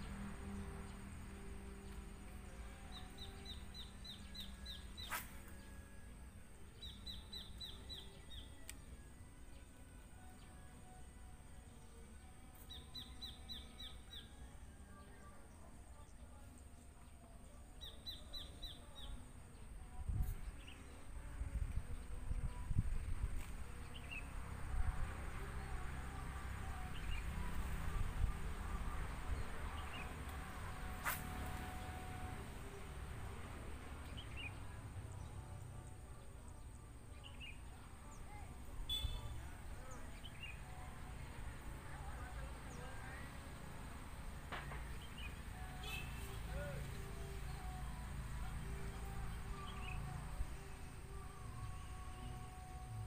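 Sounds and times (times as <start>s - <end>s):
bird chirping: 0.0s - 6.1s, 6.7s - 11.0s, 34.0s - 40.9s
bird chirps: 38.9s - 40.6s.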